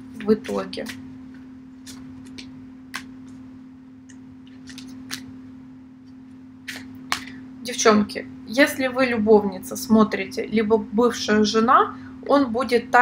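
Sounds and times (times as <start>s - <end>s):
steady low hum: 0.0s - 13.0s
cards flicking and tapping: 0.2s - 3.5s, 4.1s - 5.4s, 6.1s - 7.4s.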